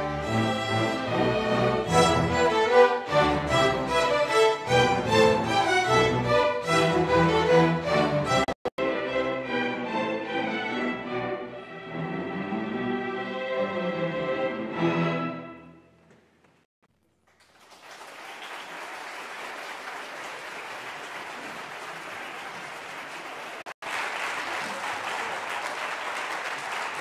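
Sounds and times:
string orchestra chord: 0.0 - 15.7
audience applause: 17.2 - 27.0.

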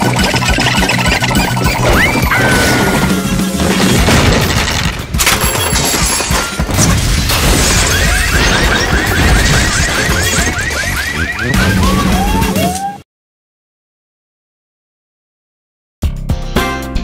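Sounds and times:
cartoon crashing and banging: 0.0 - 12.8
music: 0.0 - 13.0, 16.0 - 17.0.

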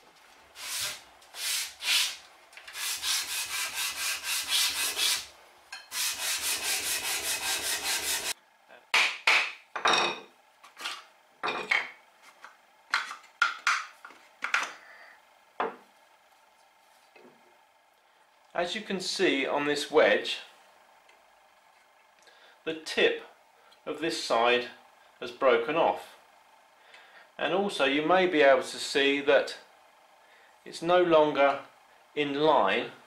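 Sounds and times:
wood rubbing on sandpaper: 0.6 - 5.3, 5.9 - 8.4.

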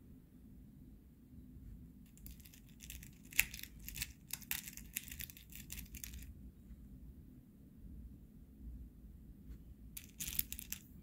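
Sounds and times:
pellets rattling in metal tin: 10.0 - 10.9.

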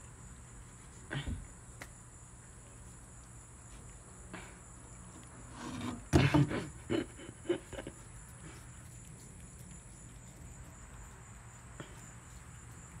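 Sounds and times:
cat chewing and licking: 0.0 - 1.1, 7.6 - 13.0
low background hum: 0.0 - 13.0.

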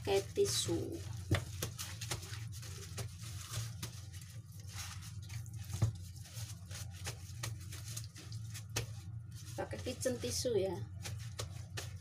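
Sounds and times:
paper towel patting wet chicken: 0.0 - 12.0.

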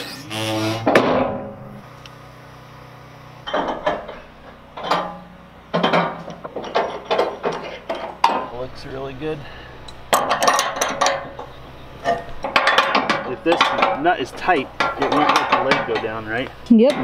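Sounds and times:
metal clanks ringing: 0.7 - 1.8, 3.4 - 17.0
heavy metal knock: 0.8 - 1.6.

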